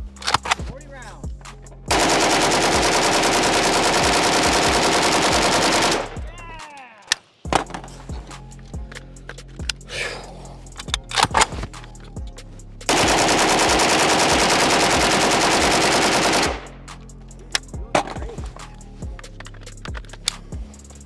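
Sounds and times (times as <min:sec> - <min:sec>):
rifle firing full-auto burst: 0:01.9 - 0:06.2, 0:12.9 - 0:16.8.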